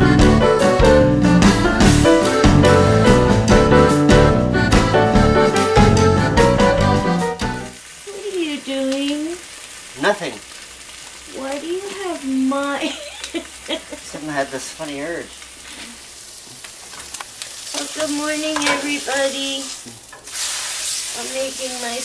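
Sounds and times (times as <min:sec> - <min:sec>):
food sizzling in a frying pan: 0:07.6 - 0:22.0.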